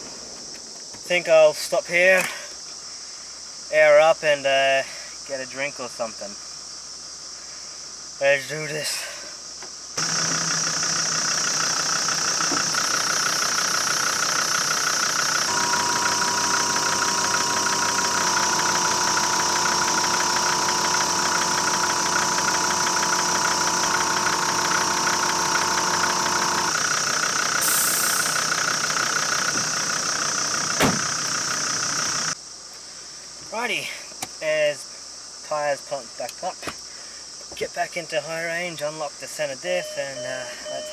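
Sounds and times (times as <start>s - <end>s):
air compressor running: 10.0s - 32.4s.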